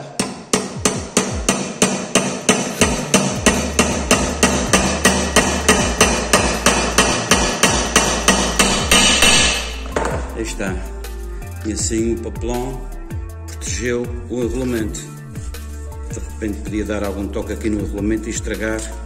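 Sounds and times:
hammer striking metal: 0.0 - 10.3.

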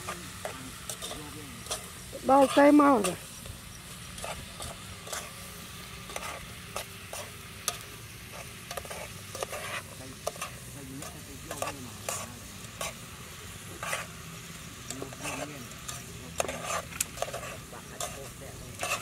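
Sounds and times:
steady hiss: 0.0 - 19.0.

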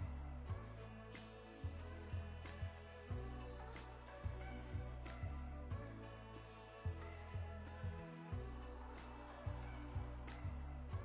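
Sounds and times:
low bass line: 0.0 - 11.0.

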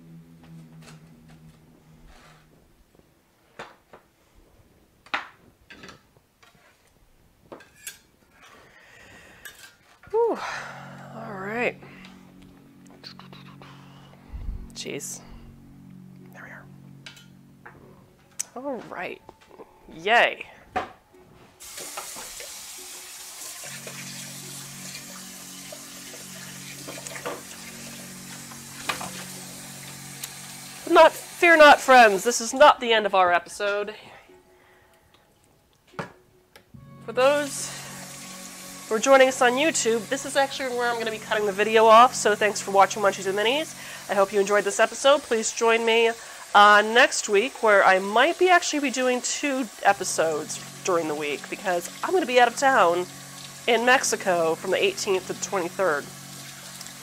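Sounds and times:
steady low hum: 0.0 - 3.2.

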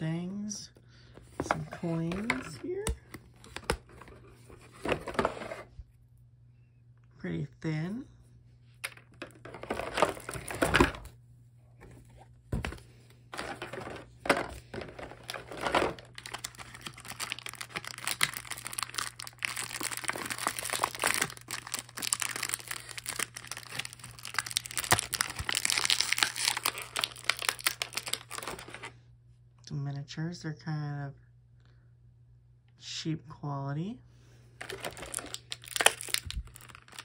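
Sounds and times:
plastic bags crinkling: 9.3 - 11.1, 12.6 - 28.9, 34.6 - 37.0.

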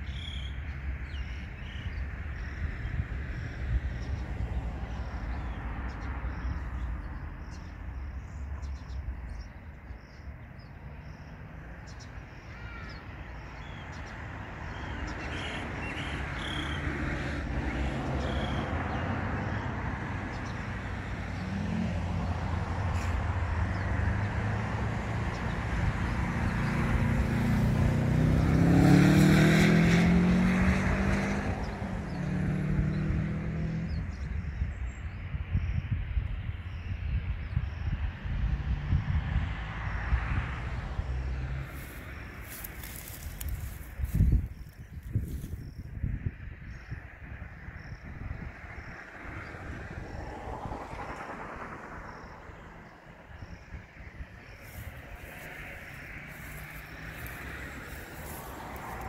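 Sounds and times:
vehicle engine accelerating: 14.8 - 34.5, 38.0 - 46.3, 47.3 - 59.0.

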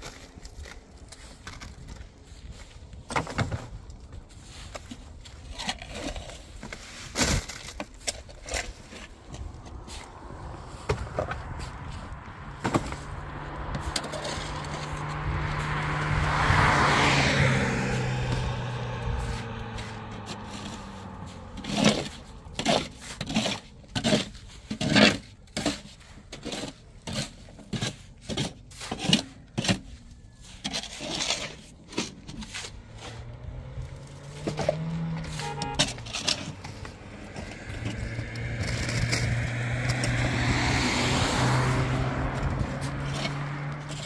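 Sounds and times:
shovel scraping concrete mix: 0.0 - 44.0
vehicle passing: 8.6 - 23.2, 32.2 - 44.0.

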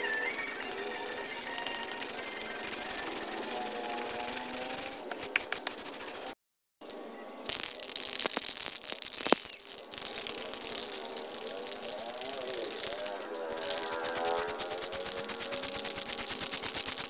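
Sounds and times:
sandpaper scratching plastic: 0.6 - 6.4, 9.1 - 17.0
aerosol spray can hissing: 13.6 - 17.0.

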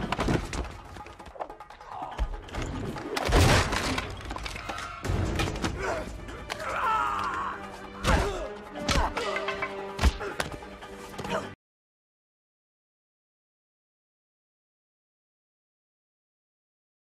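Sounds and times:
dramatic music: 0.0 - 11.6.

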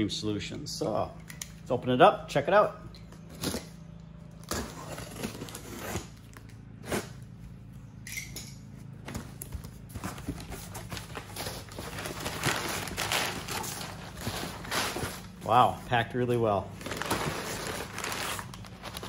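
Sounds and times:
box cutter scraping cardboard: 4.4 - 6.2
cardboard flaps rustling: 9.0 - 15.6, 16.8 - 19.0.

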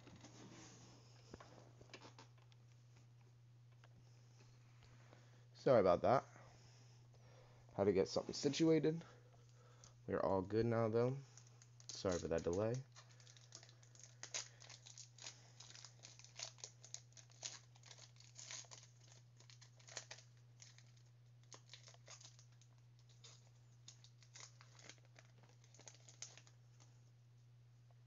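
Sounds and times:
steady low hum: 0.0 - 28.0
card pack wrapper crinkling and tearing: 11.4 - 26.6.

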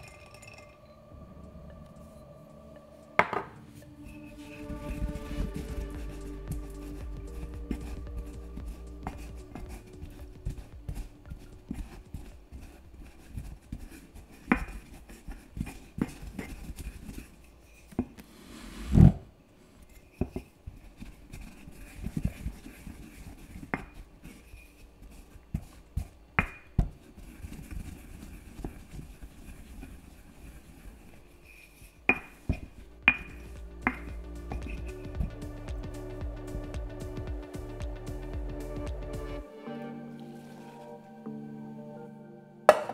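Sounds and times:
dishes and utensils clinking: 0.0 - 1.0
background music: 0.0 - 12.9, 31.4 - 42.9.

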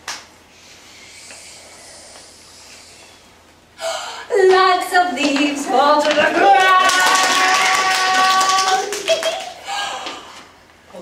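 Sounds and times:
sharp breath: 0.6 - 3.2.

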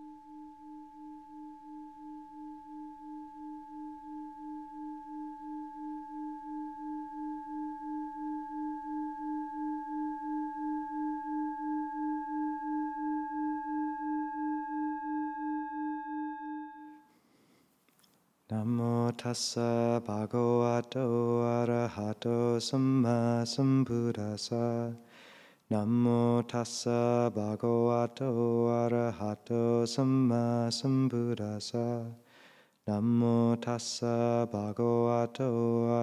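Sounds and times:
singing bowl ringing: 0.0 - 17.1.

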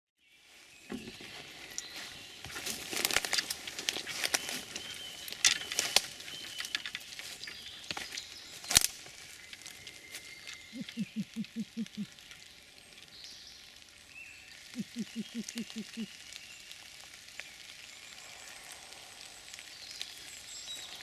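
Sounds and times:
footsteps in wet leaves and twigs: 0.2 - 21.0
light rain pattering: 0.4 - 21.0
twig snapping: 2.6 - 9.8.

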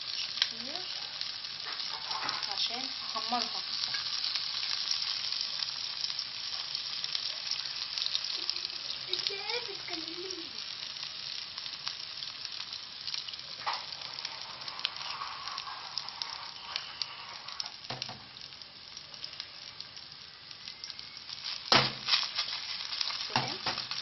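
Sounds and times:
meat sizzling in oil: 0.0 - 24.0.

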